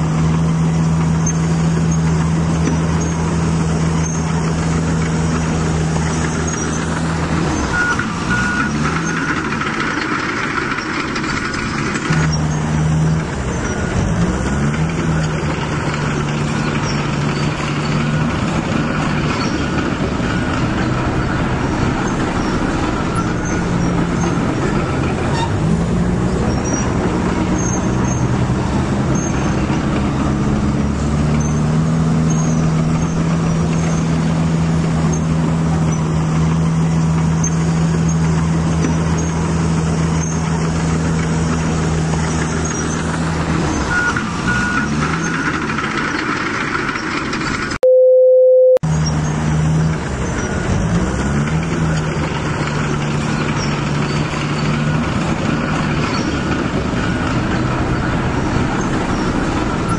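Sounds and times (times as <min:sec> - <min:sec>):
short electronic beep: 0:47.8 - 0:48.8.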